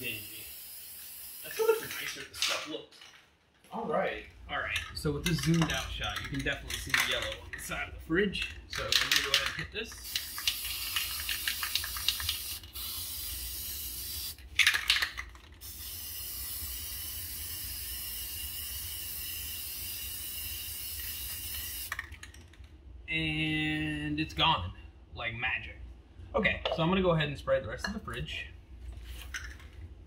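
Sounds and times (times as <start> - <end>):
aerosol spray hissing: 0.0 - 1.9, 10.0 - 14.4, 15.6 - 21.9
spray can ball rattling: 0.0 - 2.5, 8.4 - 22.6.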